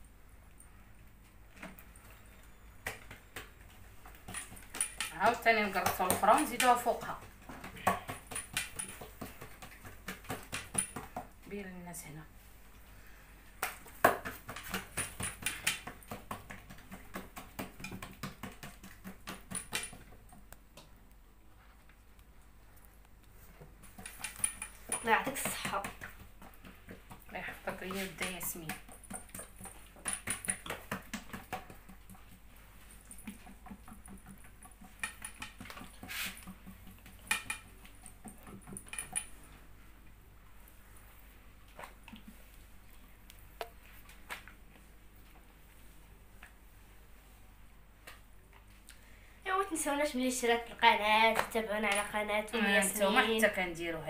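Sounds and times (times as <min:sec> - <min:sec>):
fingers slapping wet dough: 0:02.8 - 0:11.4, 0:13.5 - 0:21.0, 0:25.1 - 0:38.8.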